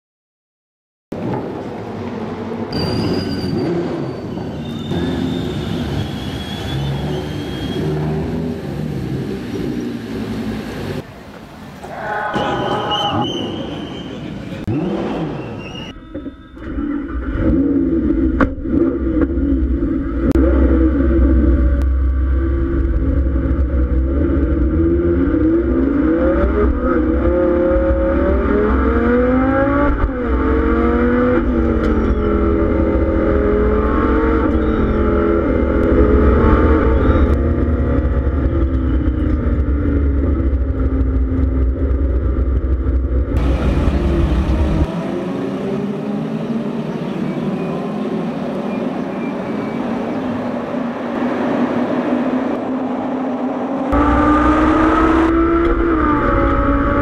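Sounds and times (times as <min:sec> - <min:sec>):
race cars passing trackside: 0:01.1 - 0:57.0
race car engine revving: 0:14.4 - 0:15.7, 0:16.7 - 0:48.8, 0:53.6 - 0:57.0.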